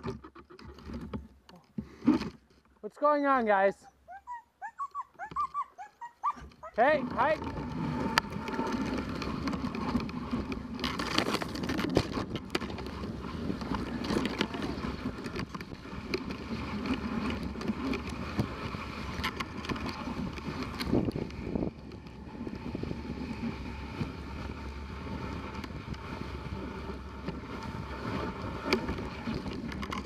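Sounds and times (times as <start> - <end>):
sled clicks and knocks: 0.0 - 3.6, 4.3 - 30.0
wind on microphone: 6.2 - 30.0.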